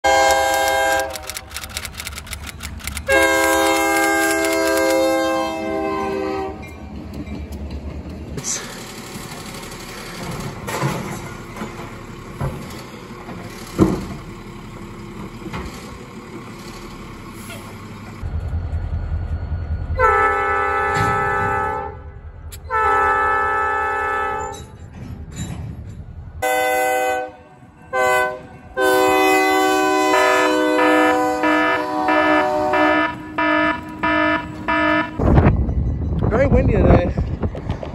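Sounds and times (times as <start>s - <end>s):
locomotive air horn blasts: 0.0s - 1.4s, 3.0s - 6.7s, 20.0s - 24.6s, 26.4s - 35.3s
garbage truck engine running: 8.4s - 23.1s
metal clanks: 10.0s - 14.4s, 24.4s - 26.4s
low rumble: 17.9s - 26.4s.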